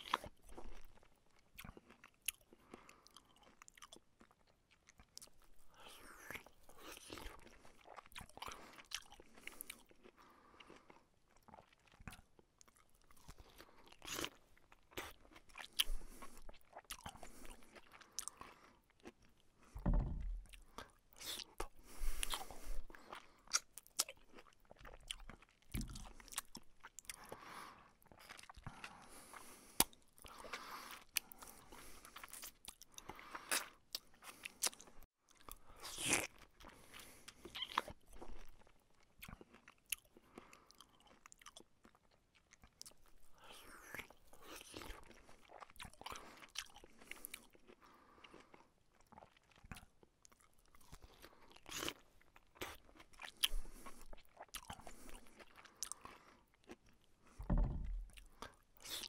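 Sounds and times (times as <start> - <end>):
chewing and crunching: 0.0 - 59.0
dull thump: 19.8 - 20.5, 57.4 - 58.1.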